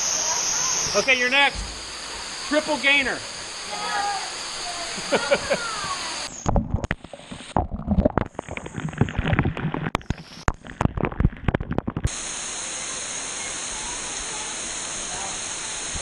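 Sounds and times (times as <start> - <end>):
rush of falling water: 0.0 - 7.6, 8.4 - 16.0
water splashing onto camera: 0.7 - 12.8.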